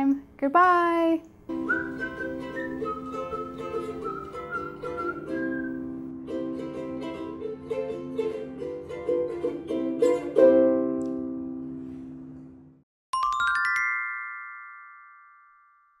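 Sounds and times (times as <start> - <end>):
light instrumental tune: 1.5 - 11.2, 13.2 - 15.7.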